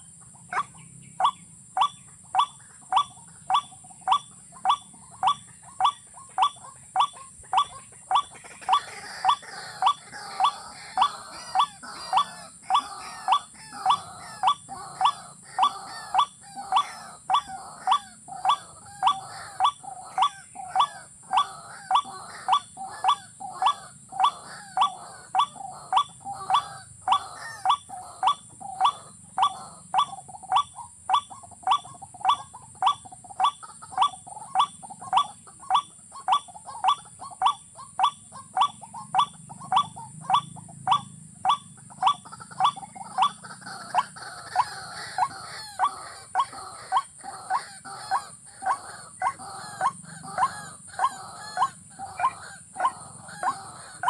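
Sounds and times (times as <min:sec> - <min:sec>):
watercock calls: 0:00.0 - 0:54.0.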